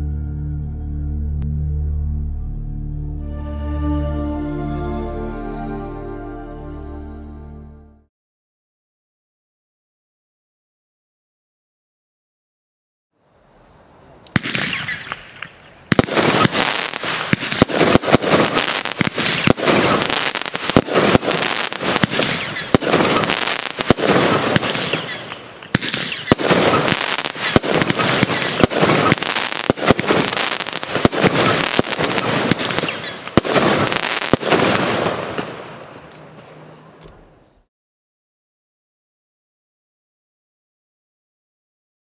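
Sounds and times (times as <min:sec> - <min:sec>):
firework pops and bangs: 0:14.3 - 0:36.0.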